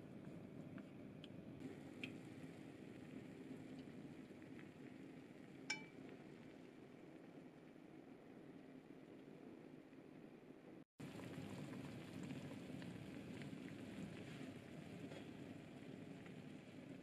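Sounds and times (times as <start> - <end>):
broth simmering: 0.0 - 17.0
utensil clinking against pot: 5.7 - 6.0.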